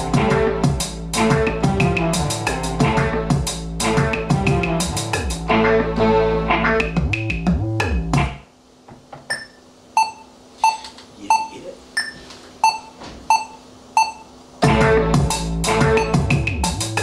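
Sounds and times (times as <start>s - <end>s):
keyboard music beat: 0.0s - 8.5s, 14.6s - 17.0s
electronic metronome beeps: 9.3s - 14.3s, 15.9s - 16.3s.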